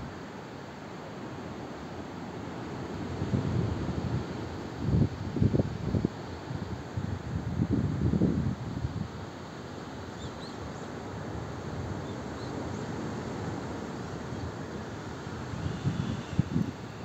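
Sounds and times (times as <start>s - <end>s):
steady outdoor hiss: 0.0s - 17.0s
wind buffeting microphone: 14.3s - 17.0s.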